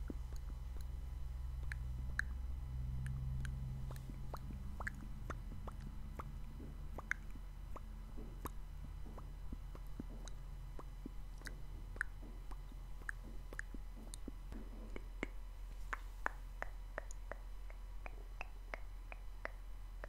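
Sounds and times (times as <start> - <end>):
wet mouth clicks and lip smacks: 0.0 - 0.9, 1.6 - 2.4, 3.0 - 19.6
low hum: 0.0 - 20.0.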